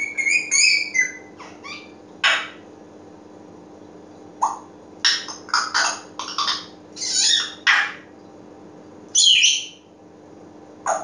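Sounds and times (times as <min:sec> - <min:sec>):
parrot squawking: 0:00.0 - 0:02.6, 0:04.4 - 0:08.1, 0:09.2 - 0:09.8.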